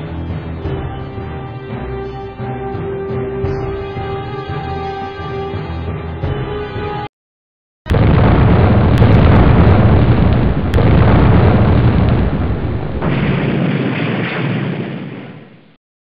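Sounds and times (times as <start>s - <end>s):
explosion with long rumble: 7.9s - 15.8s.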